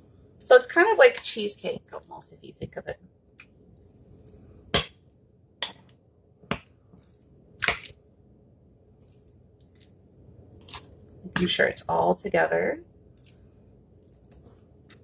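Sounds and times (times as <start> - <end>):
soft scraping and squishing: 3.4 - 4.7, 6.5 - 8.1, 8.9 - 11.6, 12.8 - 15.0.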